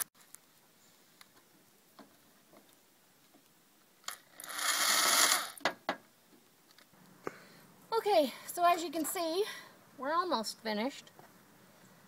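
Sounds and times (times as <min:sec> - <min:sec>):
electric drill driving screw: 0:04.1 - 0:05.6.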